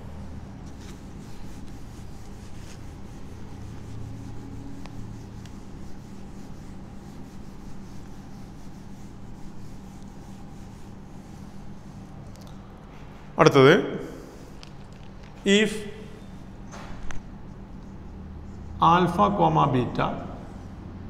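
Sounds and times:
steady low hum: 0.0 - 21.0
eraser rubbing on whiteboard: 0.5 - 12.3.

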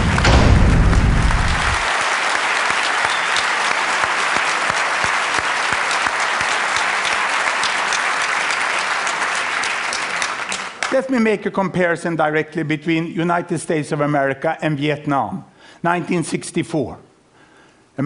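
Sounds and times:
low rumble: 0.0 - 1.8
audience applauding: 0.0 - 11.1.

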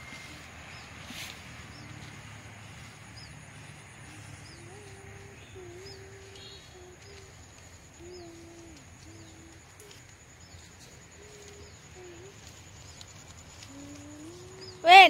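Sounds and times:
low wavering cooing: 4.0 - 10.0, 13.6 - 14.8.

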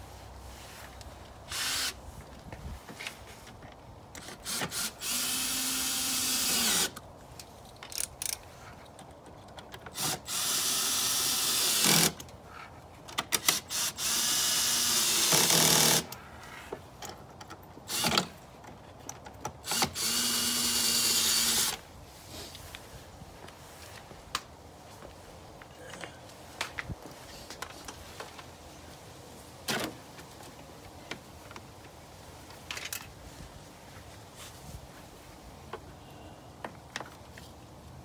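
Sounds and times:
cordless drill driving screws: 1.5 - 2.0, 4.2 - 7.0, 10.0 - 12.2, 13.4 - 16.2, 19.6 - 21.8
clicks and handling noises: 7.0 - 10.0, 29.7 - 33.2.

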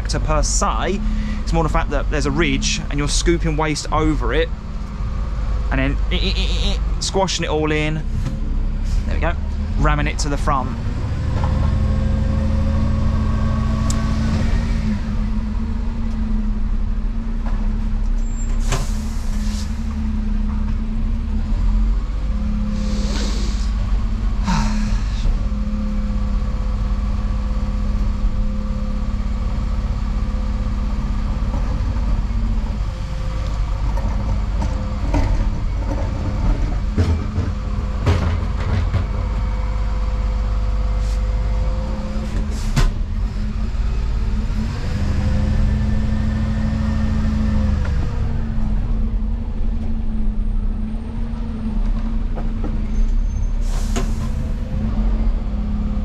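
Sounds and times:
diesel engine running: 0.0 - 56.0
short air hisses: 18.6 - 19.8, 22.7 - 23.8, 53.6 - 54.4
compactor scraping and ramming waste: 31.0 - 39.8.

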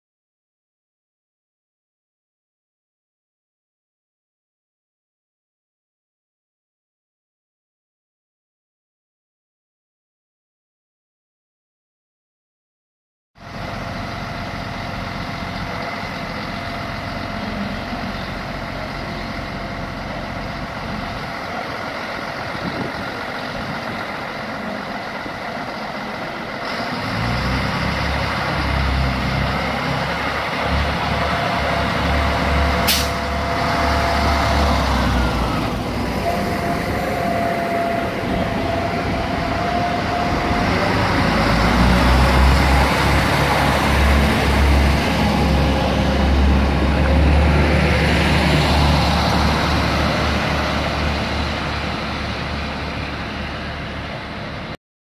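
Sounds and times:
diesel railcar engine: 13.4 - 54.8.

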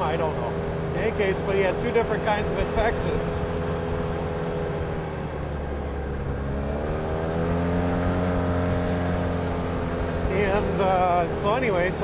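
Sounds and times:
off-road vehicle engine running: 0.0 - 12.0.

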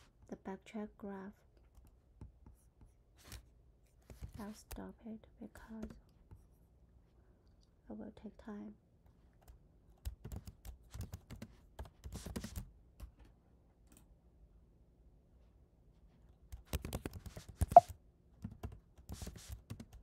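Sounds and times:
typing on a computer keyboard: 9.4 - 13.1, 16.6 - 20.0.

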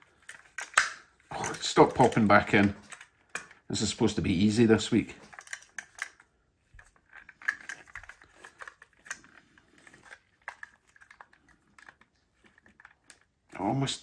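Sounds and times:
plastic shell clicks and scrapes: 5.2 - 13.3.

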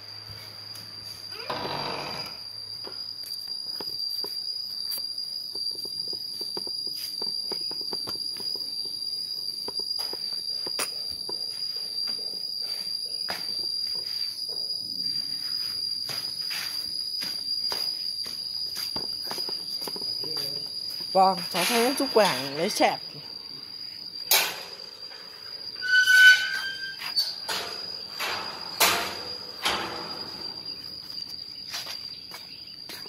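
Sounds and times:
high-pitched insect trill: 0.0 - 33.0
footsteps: 15.5 - 22.1, 30.3 - 33.0.

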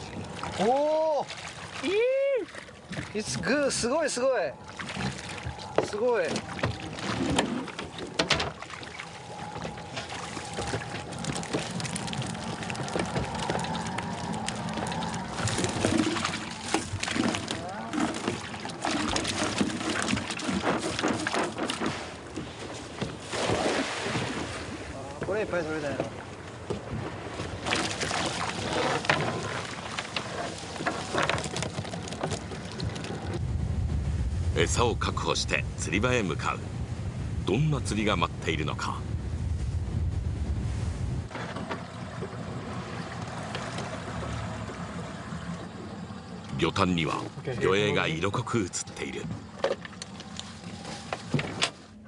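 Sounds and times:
water pouring and dripping: 0.0 - 22.0
sudden splash: 8.5 - 20.6, 23.2 - 25.0
water streaming off a net: 23.2 - 24.7.

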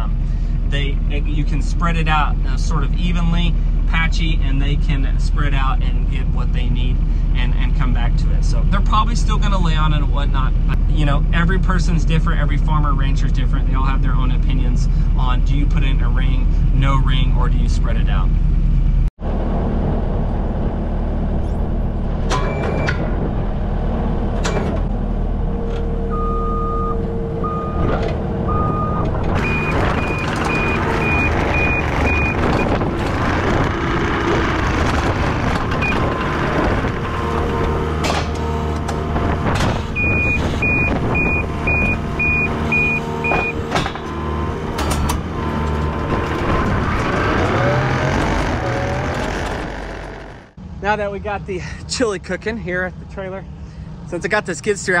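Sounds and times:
loader engine and hydraulics droning: 0.0 - 51.9
lower beeps: 26.1 - 32.7, 40.0 - 43.6
backup alarm beeping: 26.1 - 32.8, 35.8 - 36.1, 40.0 - 43.6.

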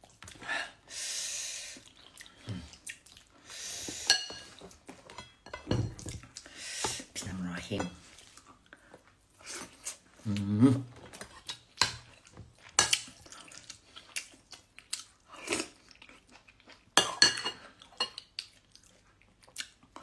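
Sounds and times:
chewing: 1.8 - 3.4, 8.0 - 17.0, 17.6 - 20.0
cutlery clinking on a plate: 4.1 - 6.2, 17.0 - 18.2
short vocal sound: 10.2 - 10.9.

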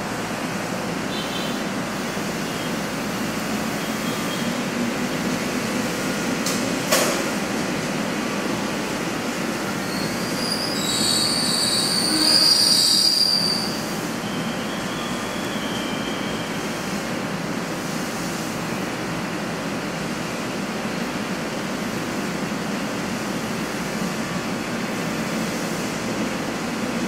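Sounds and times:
passenger train rumbling: 0.0 - 27.0
wheel and brake squeal: 3.7 - 4.6, 9.8 - 16.8.

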